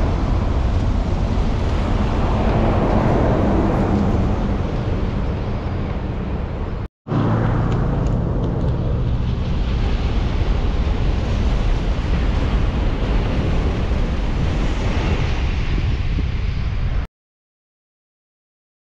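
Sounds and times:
low hum: 0:00.0 - 0:10.8.

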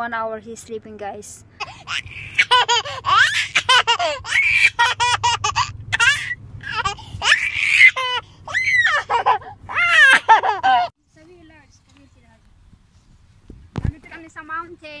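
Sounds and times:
car cabin rumble: 0:01.5 - 0:11.5
child laughing: 0:01.6 - 0:10.9.

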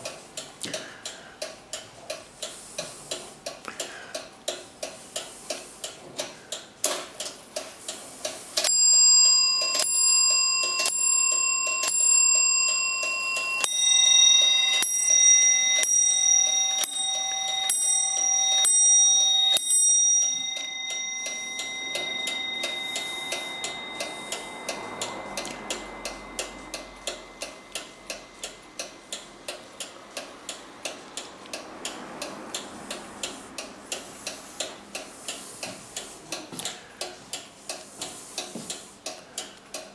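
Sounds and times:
clock ticking quickly: 0:00.0 - 0:39.9
high clock bell strokes: 0:08.2 - 0:31.0
low clock bell strokes: 0:08.6 - 0:31.1.

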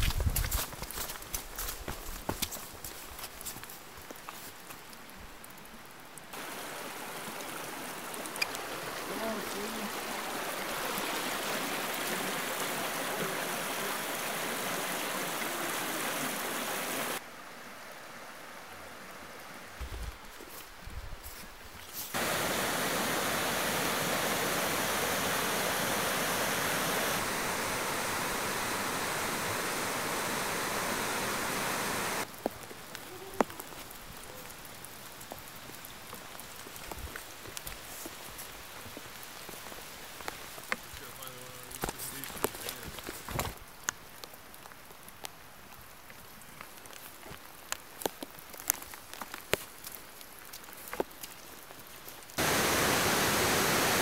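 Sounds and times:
creek running over rocks: 0:00.0 - 0:54.0
river rapids rushing: 0:06.4 - 0:17.2, 0:22.2 - 0:32.3, 0:52.4 - 0:54.0
light ticks and patters: 0:32.2 - 0:52.4.

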